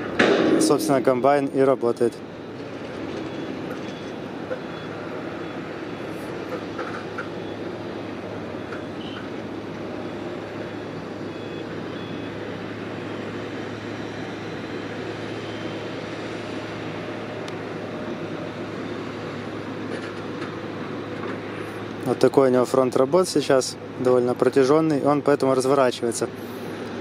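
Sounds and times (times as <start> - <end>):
heavy earthmoving machinery running: 0.0 - 27.0
reversing alarm beeps: 0.2 - 19.2.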